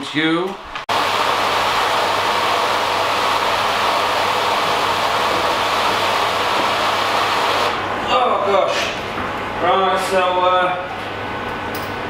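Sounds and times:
electric pump running: 0:00.5 - 0:09.9.

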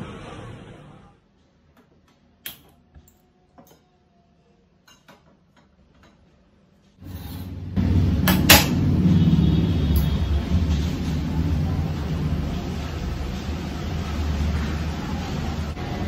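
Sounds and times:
rumble and hiss of heating water: 0:10.2 - 0:16.0.

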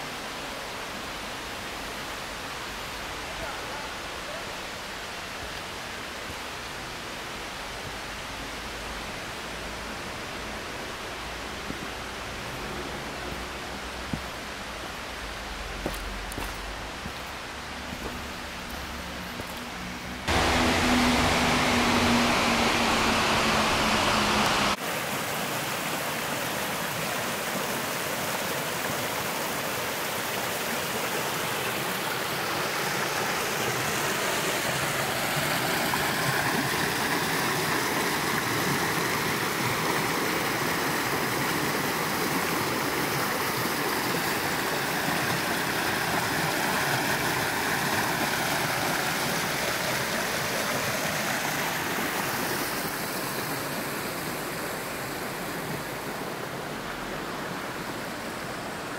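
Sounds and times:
creek rushing over rocks: 0:00.0 - 0:58.9.

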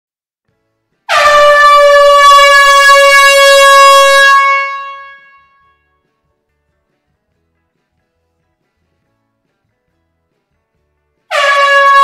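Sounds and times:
air horn blast in a hall: 0:01.1 - 0:05.9, 0:11.3 - 0:12.0.

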